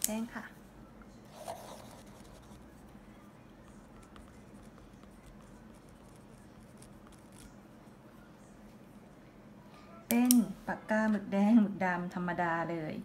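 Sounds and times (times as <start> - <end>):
pen scratching on paper: 1.3 - 2.6, 3.7 - 7.5.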